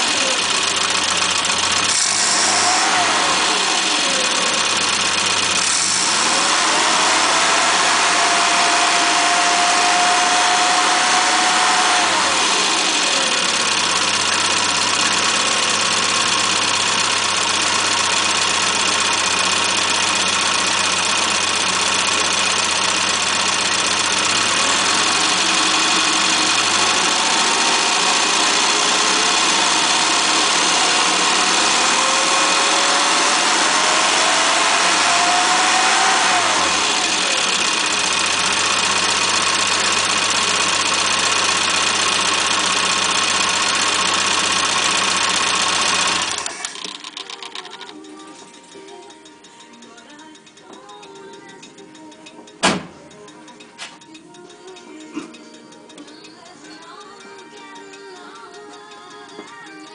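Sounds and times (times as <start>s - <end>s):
car engine revving: 0.0s - 47.0s.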